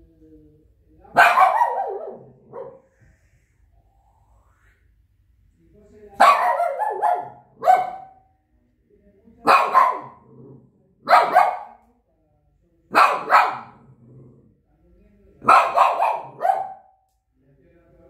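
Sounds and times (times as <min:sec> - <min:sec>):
dog barking: 0:01.1 - 0:02.9, 0:06.2 - 0:08.2, 0:09.4 - 0:11.8, 0:12.9 - 0:13.9, 0:15.4 - 0:17.0.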